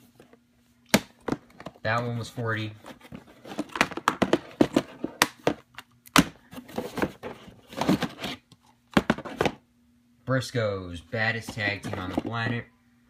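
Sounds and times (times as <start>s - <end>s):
plastic cases clacking together: 2.9s - 9.6s, 11.4s - 12.6s.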